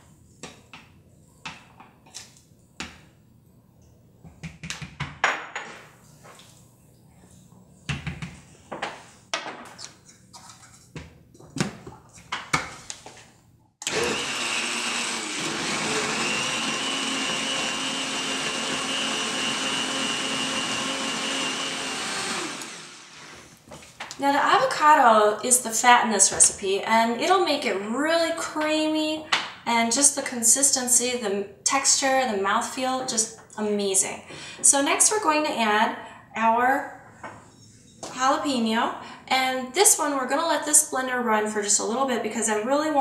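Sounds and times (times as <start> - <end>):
high-speed blender running: 13.8 - 23.3.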